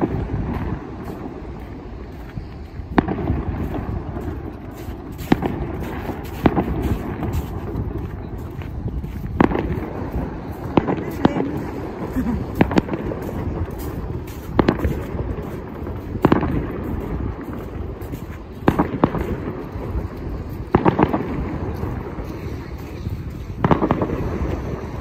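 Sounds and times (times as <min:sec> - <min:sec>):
fireworks banging: 0:00.0 - 0:25.0.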